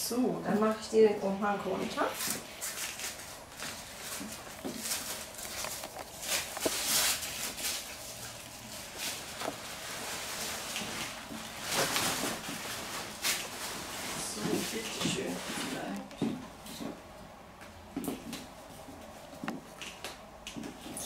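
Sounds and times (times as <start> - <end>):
cape rustling: 2.0 - 16.0.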